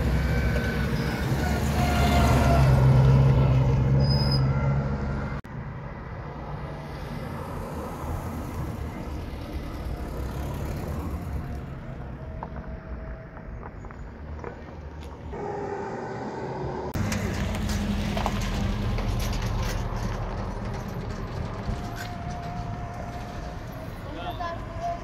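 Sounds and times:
vehicle engine humming: 0.0s - 25.0s.

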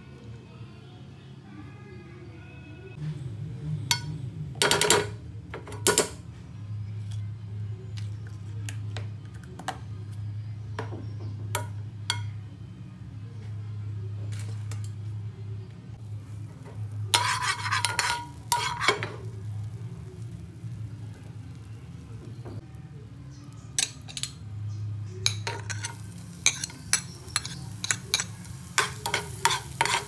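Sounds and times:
metal spoon tapping a frying pan: 11.6s - 12.3s, 17.2s - 19.2s, 25.2s - 30.0s
spoon scraping across a pan: 16.2s - 20.4s, 25.2s - 30.0s.

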